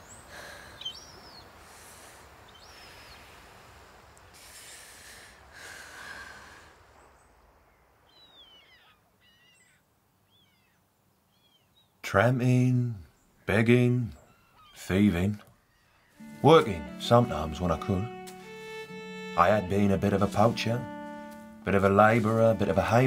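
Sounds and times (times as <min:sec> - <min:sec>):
birds calling: 0:00.0 - 0:01.6, 0:07.0 - 0:12.0, 0:13.1 - 0:23.0
soft surf wash: 0:01.1 - 0:08.1, 0:16.2 - 0:23.0.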